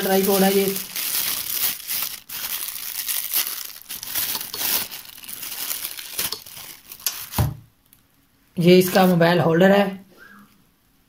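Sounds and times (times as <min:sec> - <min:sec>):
plastic wrapping crinkling: 0:00.0 - 0:08.0.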